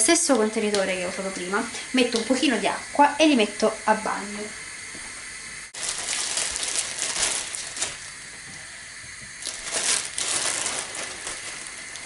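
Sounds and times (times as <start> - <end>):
water running into plastic jug: 5.8 - 8.1, 9.2 - 12.0
crackly handling noise: 5.8 - 8.6, 9.2 - 12.0.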